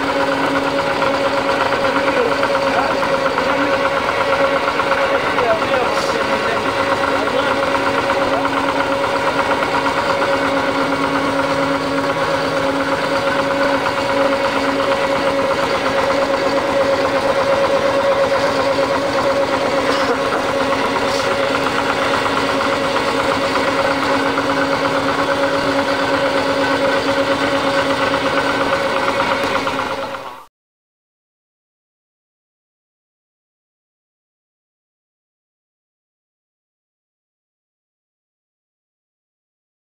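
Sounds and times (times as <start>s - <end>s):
engine running: 0.0s - 30.5s.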